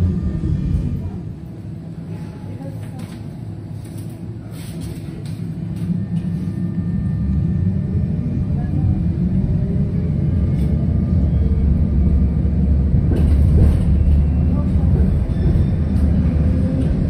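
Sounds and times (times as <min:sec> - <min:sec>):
tram rolling rumble: 0:00.0 - 0:17.0.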